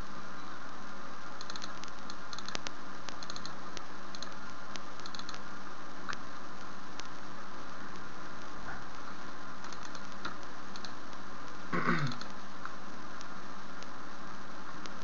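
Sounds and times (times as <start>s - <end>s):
microphone hiss: 0.0s - 15.0s
computer mouse clicking: 1.4s - 5.4s, 9.6s - 11.0s, 12.1s - 12.4s.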